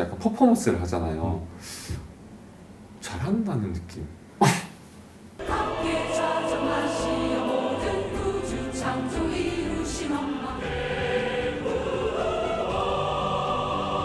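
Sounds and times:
large choir singing: 0:05.4 - 0:14.0.

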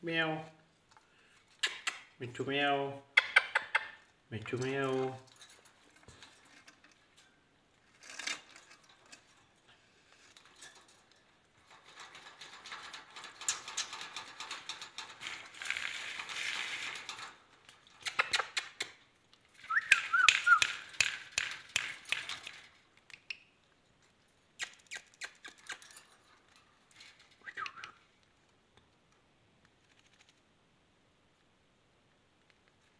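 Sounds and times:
rustling and scraping on wire cage: 0:04.0 - 0:28.6, 0:29.7 - 0:30.5.

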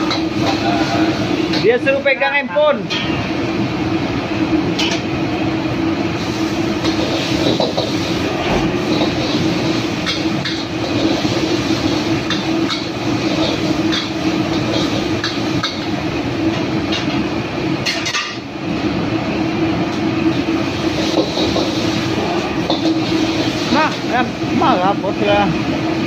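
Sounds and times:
gas burner rushing: 0:00.0 - 0:26.0.

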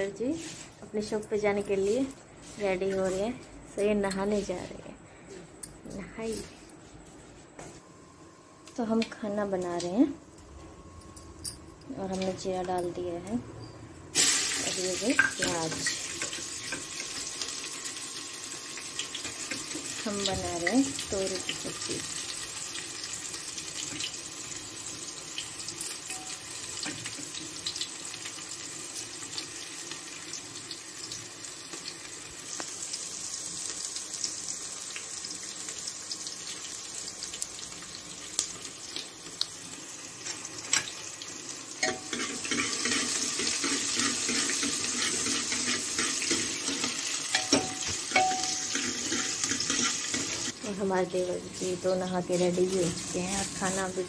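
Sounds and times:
utensils clinking: 0:41.8 - 0:50.4.

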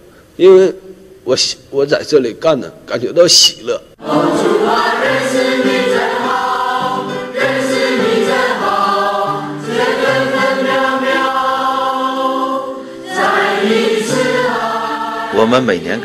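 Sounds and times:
choir singing a hymn: 0:04.0 - 0:16.0.

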